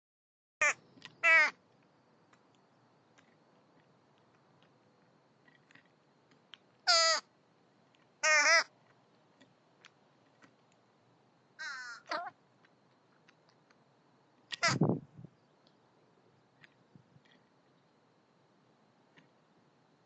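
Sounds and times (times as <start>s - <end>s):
raven calling: 0.6s - 1.6s, 6.8s - 7.3s, 8.2s - 8.8s, 11.6s - 12.4s, 14.5s - 14.9s.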